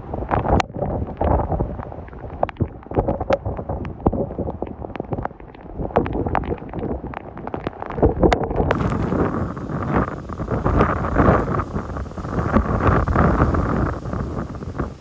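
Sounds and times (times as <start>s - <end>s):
wind buffeting the microphone: 0.0s - 15.0s
sharp clicks and pops: 2.2s - 15.0s.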